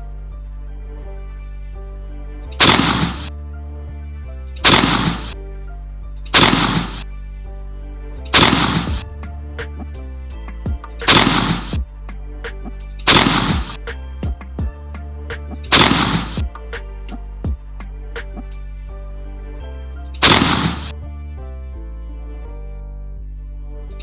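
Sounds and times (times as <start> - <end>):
background music: 0.0 - 24.0
shotgun shots: 2.6 - 3.3, 4.6 - 5.4, 6.4 - 7.0, 8.3 - 9.0, 11.0 - 11.8, 13.1 - 13.9, 15.7 - 16.5, 20.2 - 20.9.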